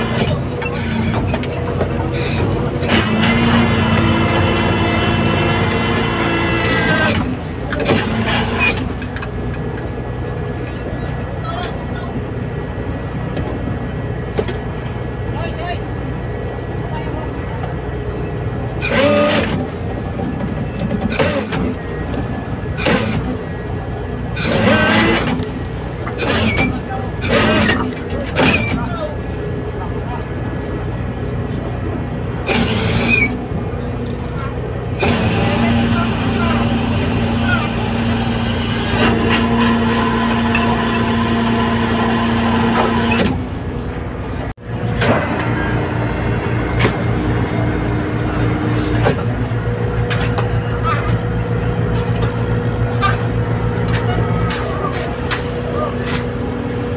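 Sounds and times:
crew shouting: 0:00.0 - 0:07.3, 0:18.8 - 0:19.6, 0:32.5 - 0:40.2
boat machinery droning: 0:00.0 - 0:56.9.

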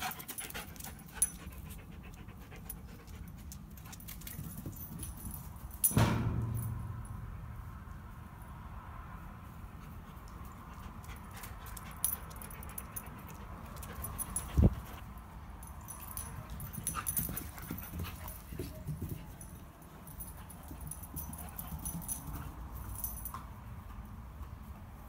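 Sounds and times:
loud thump: 0:05.9 - 0:07.2.

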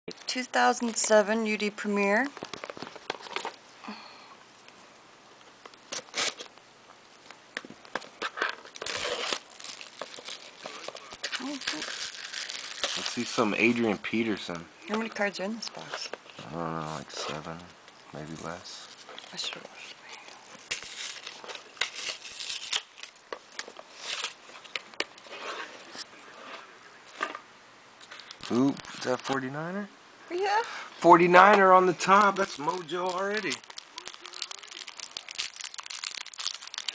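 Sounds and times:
packaging rustling: 0:02.3 - 0:03.6, 0:05.9 - 0:06.6, 0:07.2 - 0:13.9, 0:18.2 - 0:26.5, 0:28.0 - 0:29.5, 0:31.3 - 0:36.9
plastic wrapping crinkling and tearing: 0:02.3 - 0:03.6, 0:05.8 - 0:06.6, 0:07.2 - 0:14.4, 0:15.8 - 0:27.4, 0:28.0 - 0:29.7, 0:31.2 - 0:36.9.

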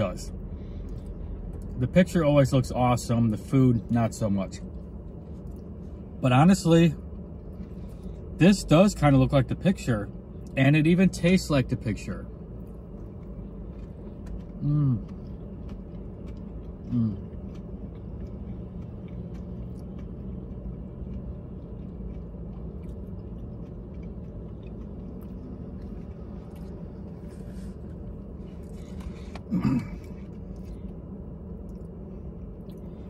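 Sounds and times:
low hum in car cabin: 0:00.0 - 0:33.0
person chewing food: 0:04.7 - 0:06.0, 0:12.4 - 0:33.0
person humming: 0:16.9 - 0:17.2.

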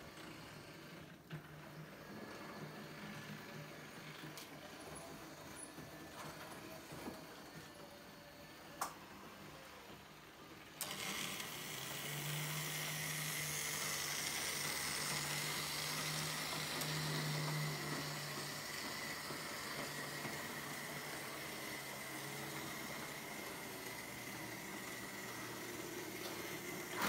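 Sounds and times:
model train motor hum: 0:09.5 - 0:27.0.

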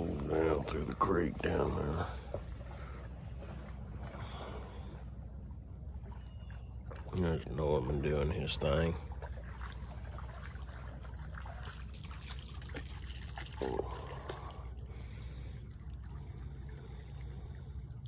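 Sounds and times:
creek water trickling: 0:00.0 - 0:18.0.

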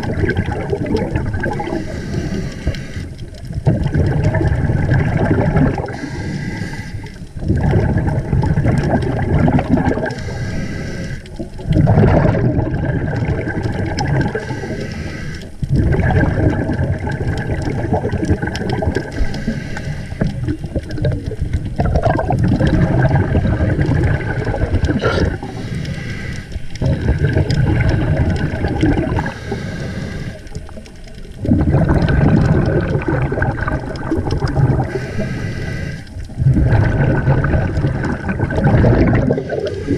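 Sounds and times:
exhaled air bubbles rushing: 0:00.0 - 0:39.9
underwater regulator breathing: 0:01.4 - 0:03.5, 0:05.7 - 0:08.0, 0:09.9 - 0:11.6, 0:14.0 - 0:16.1, 0:17.6 - 0:21.1, 0:22.6 - 0:32.8, 0:34.0 - 0:39.9.

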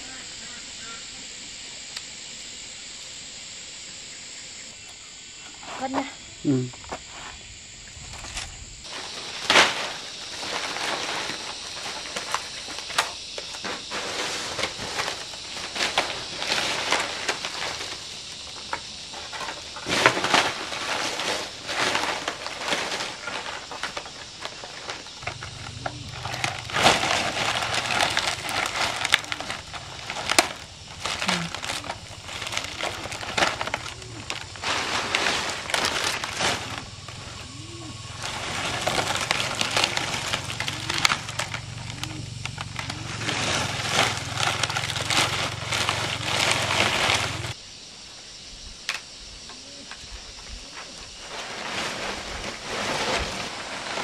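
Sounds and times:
dried palm leaves crackling: 0:08.0 - 0:47.6, 0:50.7 - 0:54.0.

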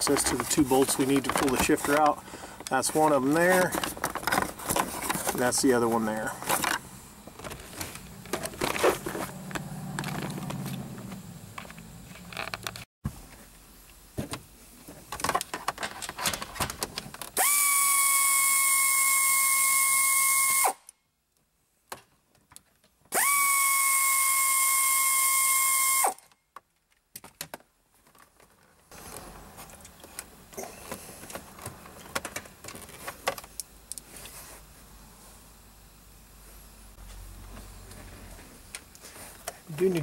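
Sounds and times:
clicks and handling knocks: 0:00.0 - 0:05.7
power drill whining: 0:23.2 - 0:26.2.

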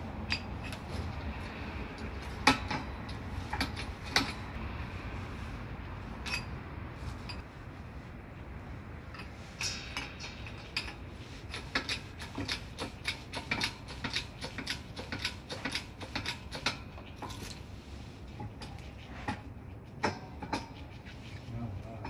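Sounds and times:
metal pump handle clicking: 0:02.5 - 0:04.4, 0:09.2 - 0:17.6.

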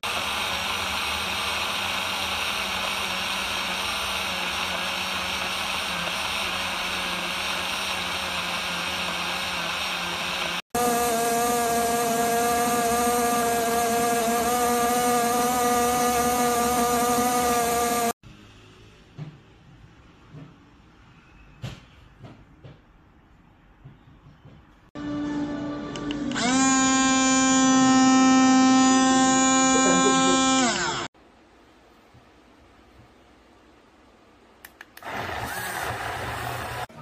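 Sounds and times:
small blender motor whirring: 0:00.0 - 0:18.2, 0:26.3 - 0:31.1, 0:35.0 - 0:36.9.

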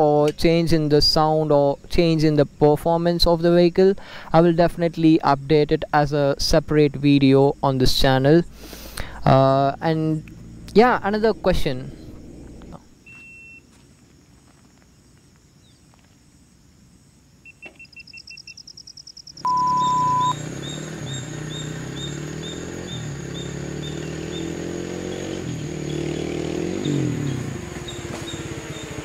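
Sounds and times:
motorcycle engine approaching: 0:09.0 - 0:13.0, 0:19.5 - 0:29.0
camera beeping: 0:17.5 - 0:20.3
steady electronic beep tone: 0:17.5 - 0:20.4.

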